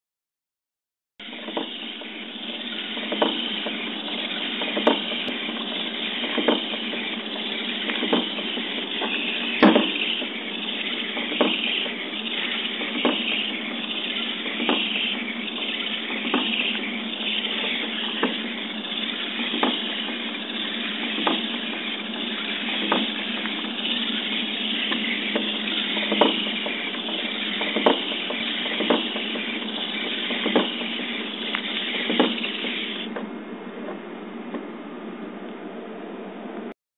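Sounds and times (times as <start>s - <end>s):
servos whirring: 1.2s - 33.2s
regular clicks or knocks: 7.9s - 10.4s.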